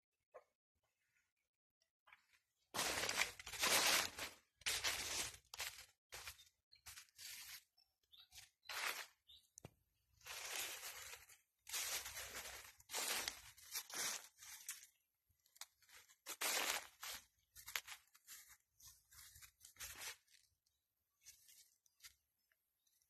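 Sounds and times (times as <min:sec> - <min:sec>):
dry leaves rustling and crunching: 0:02.8 - 0:07.7, 0:08.3 - 0:09.4, 0:10.2 - 0:20.4.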